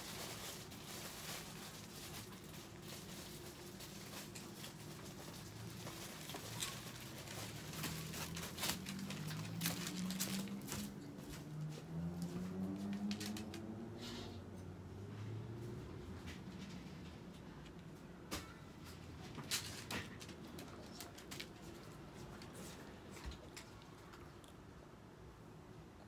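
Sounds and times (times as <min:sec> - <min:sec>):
plastic tarp crinkling: 0:00.0 - 0:11.4.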